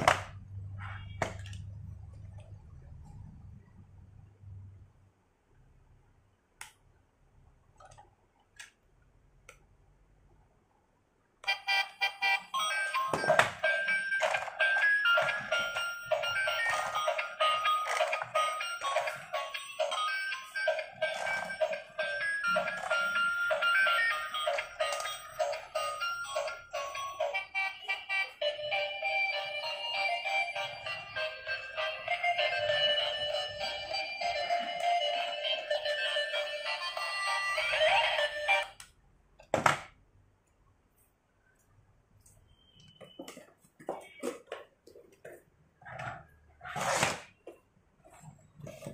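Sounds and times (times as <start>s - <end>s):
toy car electronic tune: 11.4s - 38.8s.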